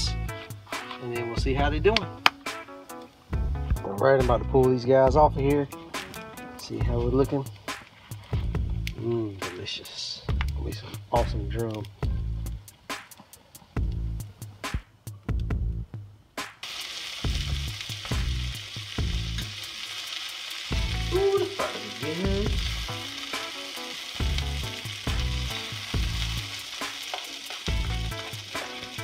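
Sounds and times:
vegetables sizzling in frying pan: 16.6s - 29.0s.

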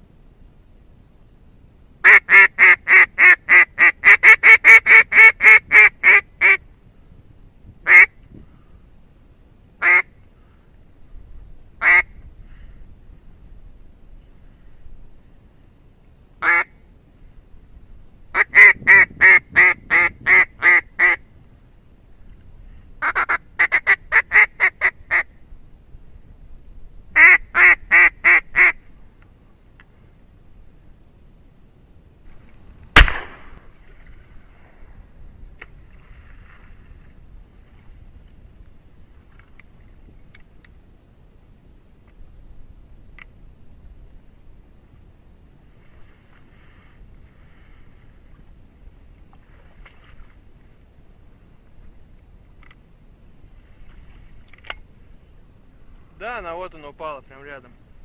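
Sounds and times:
duck quacking: 9.8s - 10.1s, 27.2s - 28.8s.

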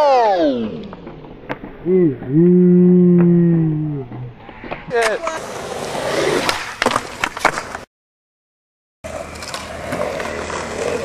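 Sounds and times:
skateboard wheels rolling on concrete: 4.1s - 7.9s, 9.0s - 11.0s.

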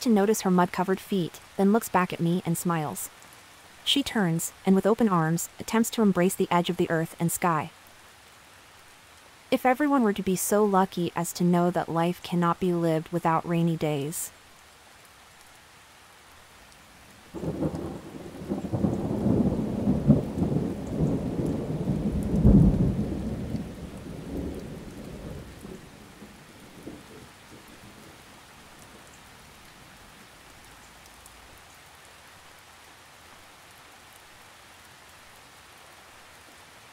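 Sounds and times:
steady rain: 0.0s - 36.9s
thunder rumbling: 17.3s - 28.2s.

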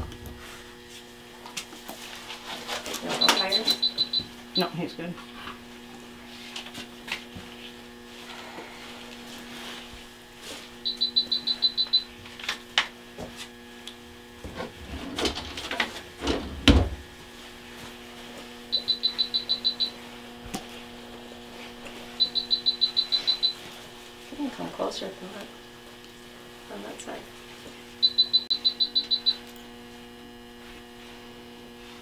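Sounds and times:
low equipment hum: 0.0s - 32.0s
rapid high electronic beeps: 3.2s - 4.8s, 10.8s - 12.1s, 18.7s - 19.9s, 22.2s - 23.6s, 28.0s - 29.4s.

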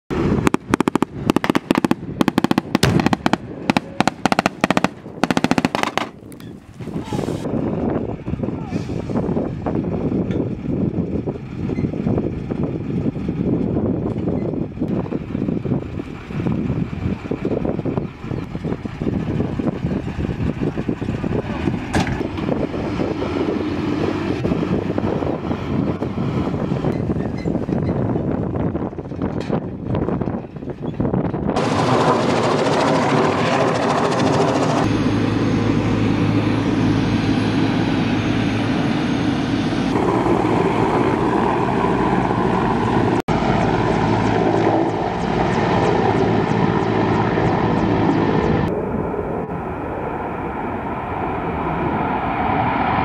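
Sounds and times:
vehicle engine rumbling: 0.1s - 52.7s
bursts of rapid sharp bangs: 0.4s - 6.2s.

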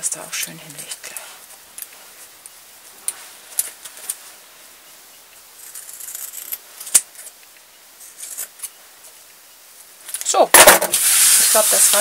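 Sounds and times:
fabric rustling: 0.8s - 4.7s.

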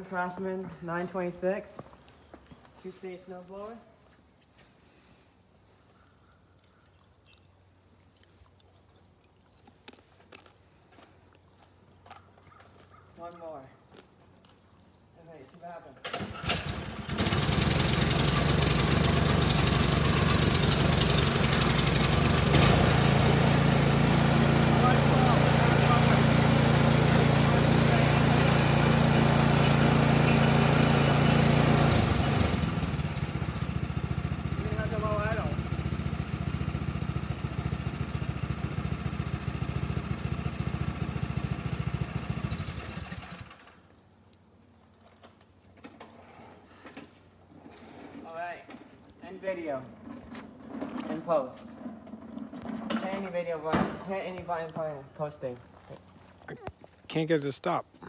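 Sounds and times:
snowblower engine running: 16.1s - 43.8s.

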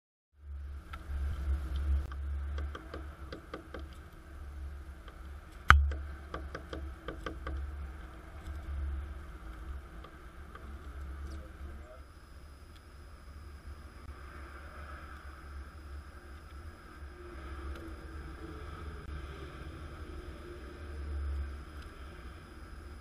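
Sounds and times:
steady low rumble: 0.3s - 23.0s
sharp knock: 5.7s - 7.6s.

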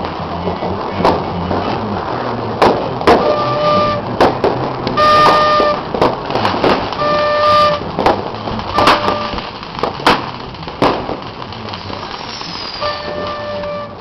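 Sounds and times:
fireworks bangs: 0.0s - 14.0s
horn blasts: 3.2s - 4.1s, 5.0s - 5.9s, 7.0s - 7.8s, 8.7s - 9.4s, 12.8s - 14.0s.

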